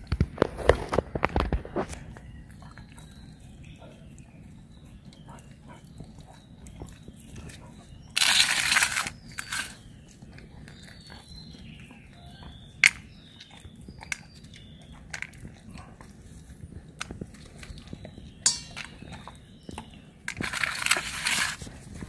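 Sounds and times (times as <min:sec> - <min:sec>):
dog chewing meat: 0:00.4 - 0:22.0
teeth clicking on bone: 0:05.0 - 0:21.2.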